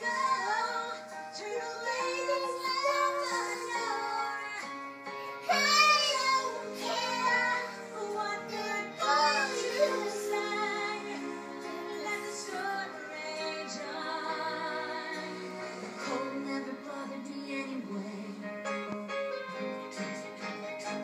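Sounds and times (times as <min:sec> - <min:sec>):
girl singing: 0:00.0 - 0:04.6, 0:05.5 - 0:11.2.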